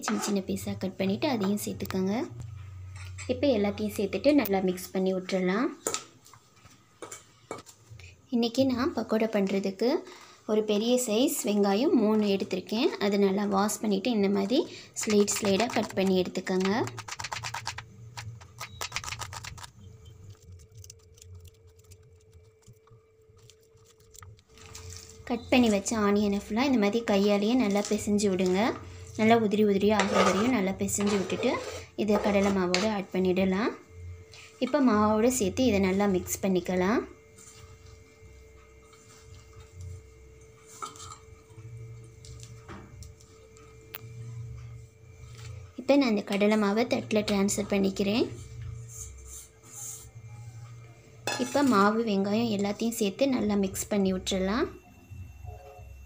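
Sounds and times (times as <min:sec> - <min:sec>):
hand mixing onions in a bowl: 0:14.9 - 0:33.0.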